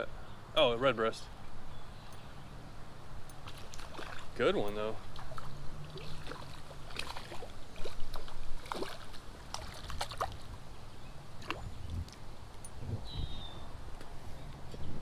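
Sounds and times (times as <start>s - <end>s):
creek water running: 1.4s - 12.7s
fish splashing at water surface: 3.4s - 4.4s, 5.0s - 10.4s.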